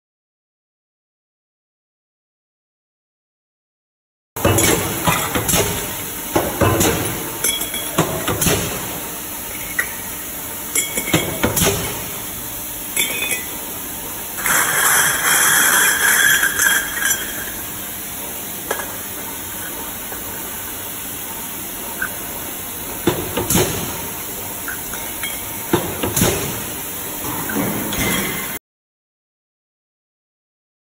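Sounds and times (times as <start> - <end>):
metal pieces clinking and rattling: 14.4 - 17.6.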